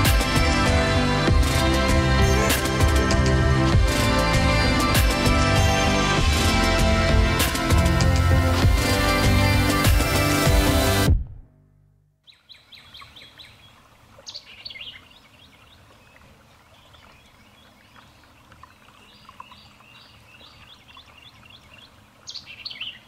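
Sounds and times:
steady outdoor hiss: 0.0 - 11.1, 12.4 - 23.0
small birds chirping: 12.2 - 23.0.

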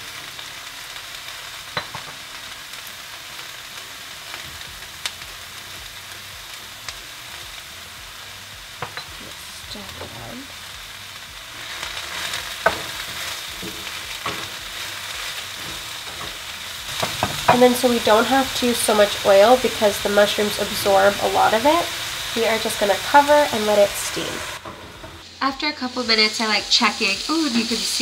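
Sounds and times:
vegetables sizzling in frying pan: 0.0 - 28.0
wooden spoon stirring in pan: 11.6 - 18.6.

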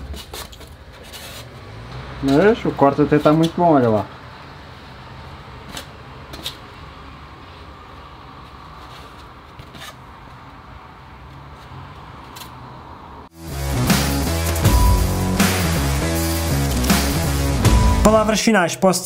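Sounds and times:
foam board clicks and scrapes: 0.0 - 1.7
music: 13.4 - 18.4.

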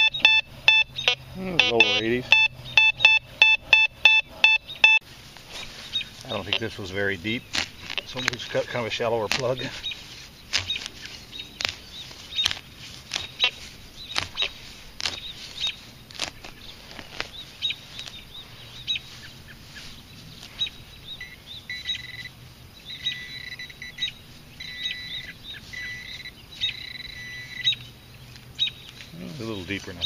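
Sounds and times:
metal detector chirps and beeps: 0.0 - 5.0, 20.6 - 22.3, 22.9 - 27.8
soil knocks and scrapes: 5.4 - 17.4.

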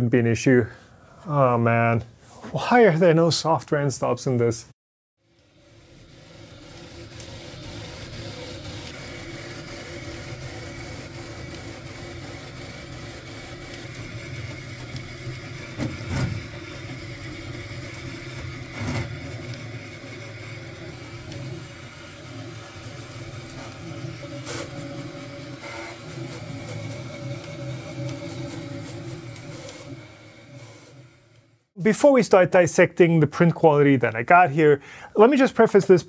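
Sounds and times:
printer fans and motors whirring: 5.2 - 31.7.

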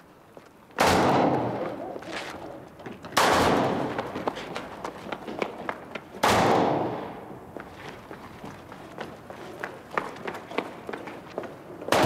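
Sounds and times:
footsteps on pavement: 0.3 - 0.8, 1.5 - 6.2, 7.5 - 11.9.

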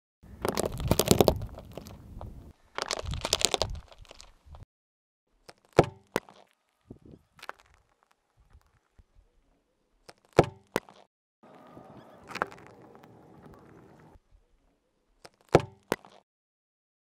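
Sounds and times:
plastic toy cracking under tyre: 0.4 - 4.4, 7.4 - 8.7.

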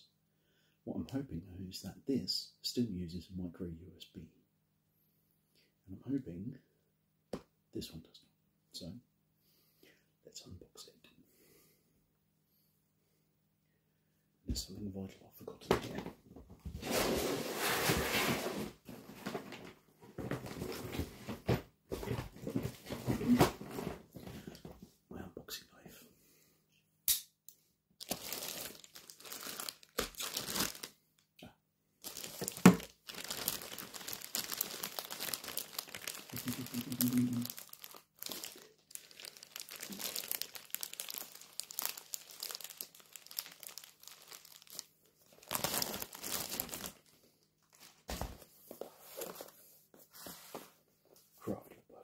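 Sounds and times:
sharp snap: 27.1 - 27.3
plastic wrap crinkling and tearing: 28.0 - 30.9, 32.0 - 48.1.

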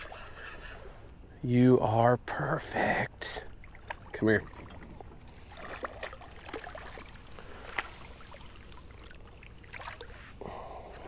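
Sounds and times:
water splashing and dripping: 3.6 - 10.3.

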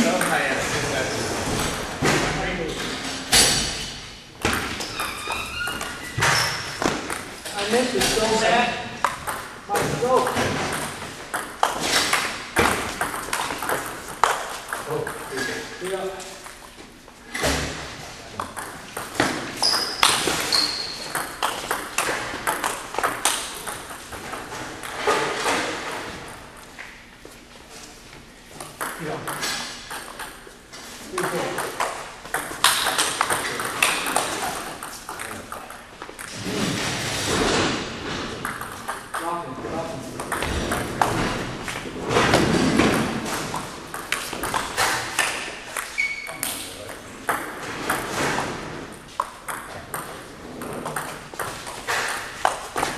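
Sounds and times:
short high squeaks: 19.6 - 21.1, 45.9 - 46.5.

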